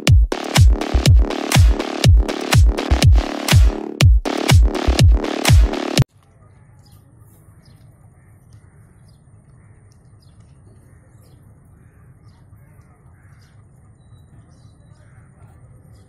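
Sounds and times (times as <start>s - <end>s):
birds chirping: 6.2s - 16.0s.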